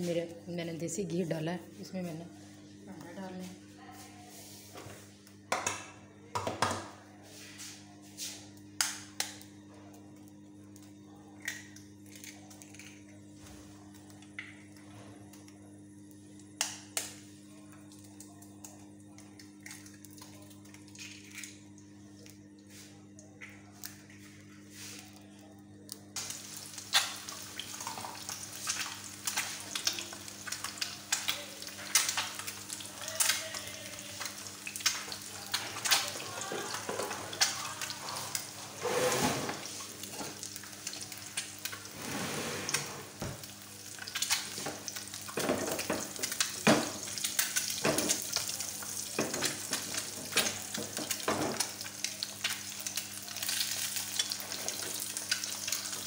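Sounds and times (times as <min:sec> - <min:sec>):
eggs sizzling in a pan: 0:26.1 - 0:42.0, 0:42.7 - 0:56.0.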